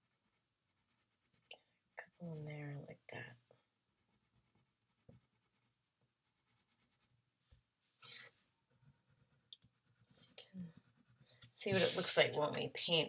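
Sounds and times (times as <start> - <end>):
crayon scratching on paper: 0.0 - 2.7, 4.0 - 7.2, 8.0 - 12.6.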